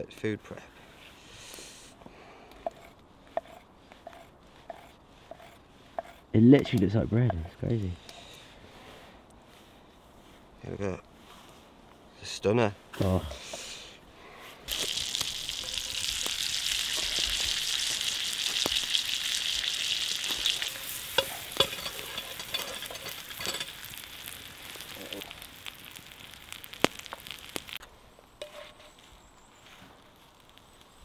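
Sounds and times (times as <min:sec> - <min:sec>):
mushrooms sizzling in a pan: 0:14.7 - 0:27.8.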